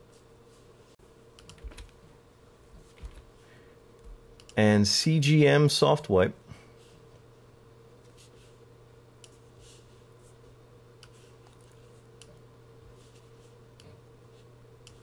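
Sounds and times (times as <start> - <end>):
steady low hum: 0.0 - 15.0
computer mouse clicks: 1.4 - 1.9, 4.4 - 4.6, 11.0 - 12.4, 14.8 - 15.0.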